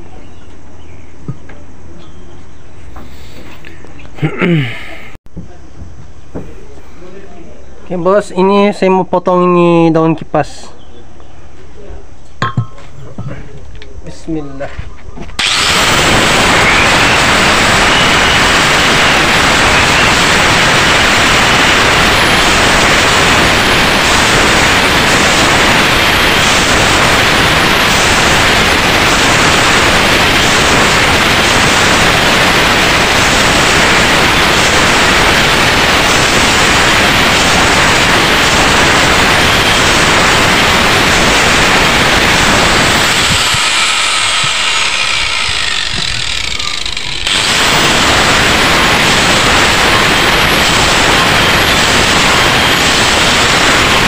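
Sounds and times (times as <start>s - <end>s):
angle grinder cutting metal: 15.4s - 54.0s.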